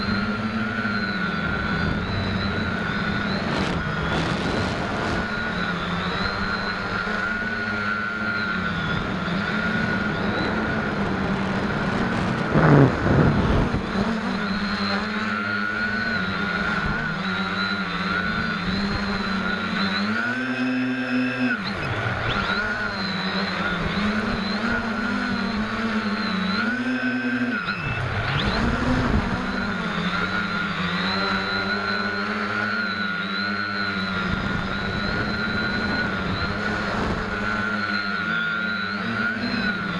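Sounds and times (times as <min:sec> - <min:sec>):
quadcopter motors buzzing: 0:00.0 - 0:39.9
loud rush: 0:11.0 - 0:14.0.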